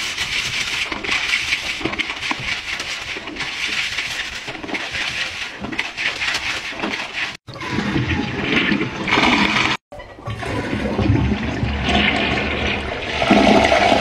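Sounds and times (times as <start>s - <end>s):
toilet flushing: 7.7s - 14.0s.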